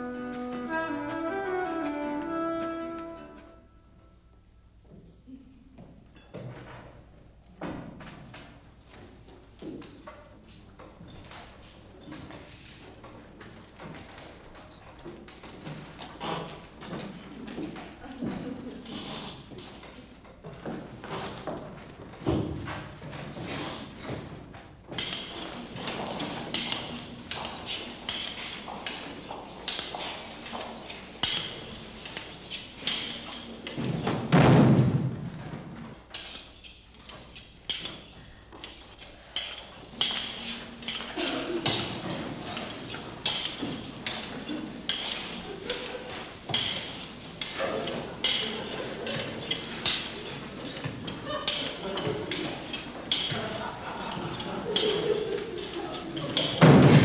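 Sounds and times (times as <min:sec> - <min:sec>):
loud low thud: 0:34.3 - 0:35.4.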